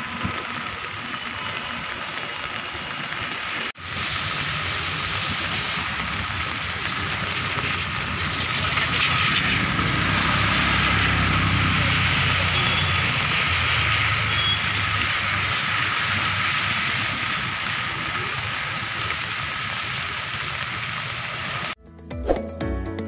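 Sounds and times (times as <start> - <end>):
rain hissing on a flooded street: 0.0 - 21.8
music: 21.8 - 23.0.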